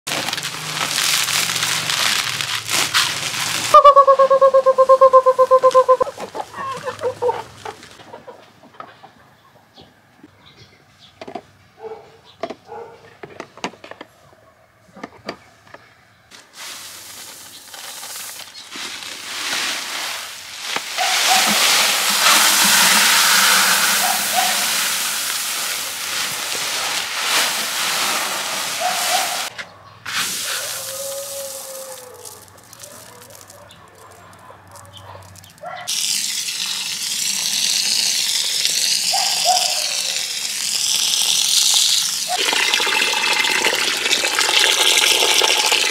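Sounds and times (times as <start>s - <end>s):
rice pouring into a bucket: 0.1s - 3.8s, 16.6s - 29.5s, 30.1s - 33.6s, 35.3s - 45.9s
water spraying from a hose: 0.1s - 6.0s, 16.6s - 29.5s, 30.1s - 33.6s, 35.4s - 45.9s.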